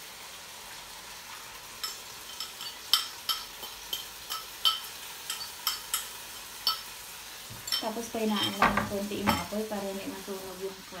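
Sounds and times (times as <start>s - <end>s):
food sizzling in a wok: 0.0s - 11.0s
spoon clinking in ceramic bowl: 1.8s - 6.9s.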